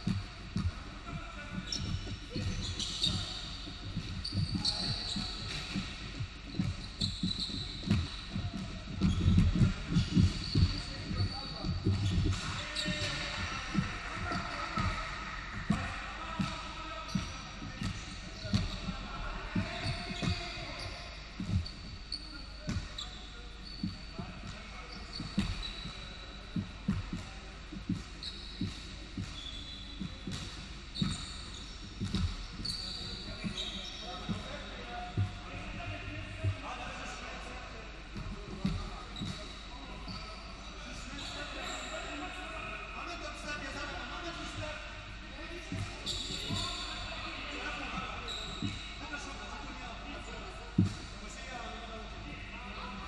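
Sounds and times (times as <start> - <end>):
basketball dribbling: 0.0 - 18.9, 19.6 - 36.6, 38.2 - 40.2
feet on hardwood court: 0.0 - 36.7, 38.1 - 40.3, 45.6 - 49.5, 50.7 - 51.2
sneaker squeaks: 0.0 - 53.0.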